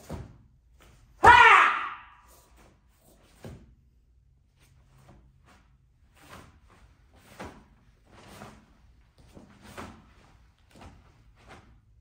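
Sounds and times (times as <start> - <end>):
bare feet thumping on mat: 0.0 - 1.4.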